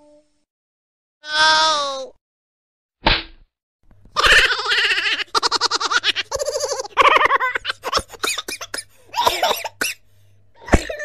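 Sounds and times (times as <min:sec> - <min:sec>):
person laughing: 0:04.2 - 0:09.8, 0:10.6 - 0:11.0.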